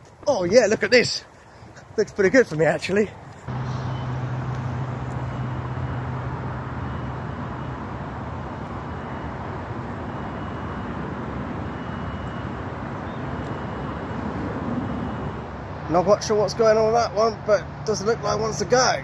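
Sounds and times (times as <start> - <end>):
construction cranes rumbling: 3.1 - 19.0
low engine hum: 3.4 - 15.9
faint short high beeps: 3.6 - 4.2.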